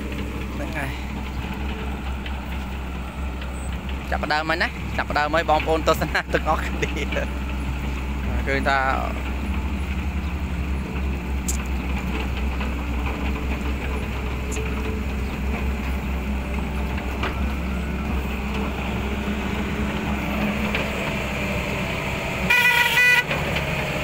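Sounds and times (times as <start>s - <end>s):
excavator diesel engine running: 0.0s - 24.0s
faint clicks: 11.4s - 12.7s.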